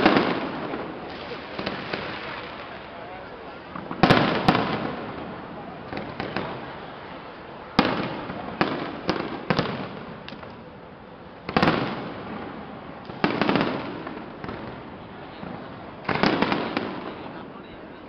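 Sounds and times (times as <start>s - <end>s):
fireworks bursting with sharp bangs: 0.0s - 18.0s.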